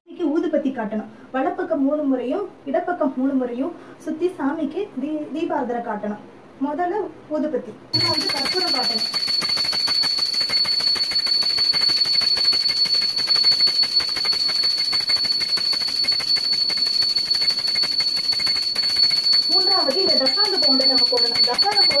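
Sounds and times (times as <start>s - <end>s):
hand bell ringing rapidly: 8.0s - 22.0s.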